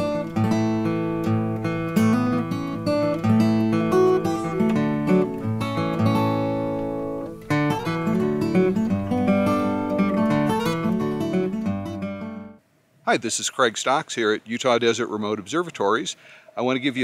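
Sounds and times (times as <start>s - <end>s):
acoustic guitar strumming: 0.0s - 12.6s.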